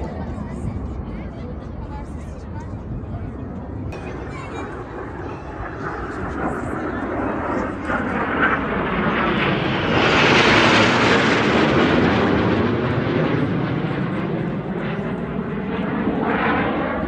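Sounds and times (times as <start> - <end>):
jet fighters passing overhead: 0.0 - 17.0.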